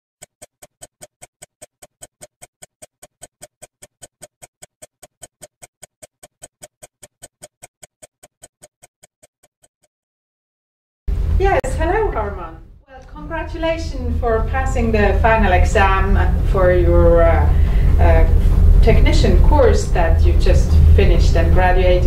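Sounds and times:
watch ticking: 0.2s - 9.9s.

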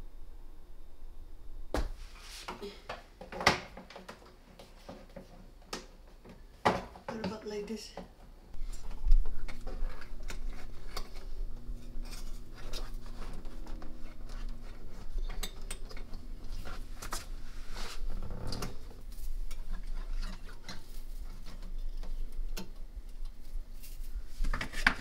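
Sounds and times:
cables and wire being handled: 8.6s - 25.0s.

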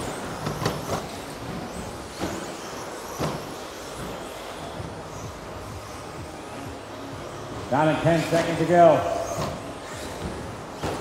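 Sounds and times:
rc truck motors buzzing: 0.0s - 7.5s.

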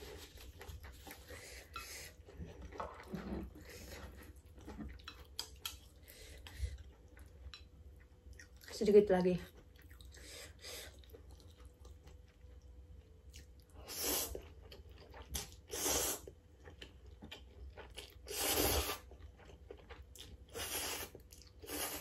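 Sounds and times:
quiet chewing: 0.0s - 8.8s, 9.4s - 22.0s
person slurping noodles: 18.3s - 19.1s, 20.5s - 22.0s.

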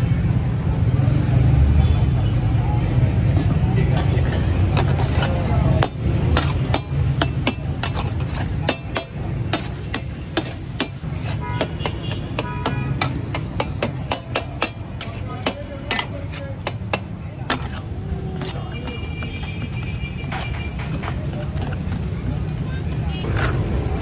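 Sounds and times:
metal spatulas clanging on griddle: 3.4s - 17.8s.

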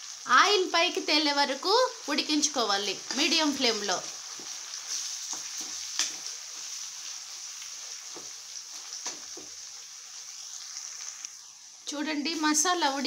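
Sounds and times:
paste sizzling in oil: 0.0s - 13.0s
spatula scraping pan: 3.0s - 9.6s.

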